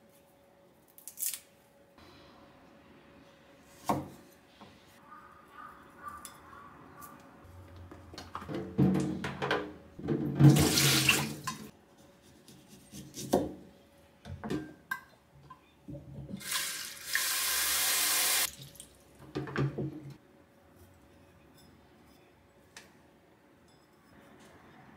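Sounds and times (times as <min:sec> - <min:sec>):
tap water running into sink: 0:10.4 - 0:11.7.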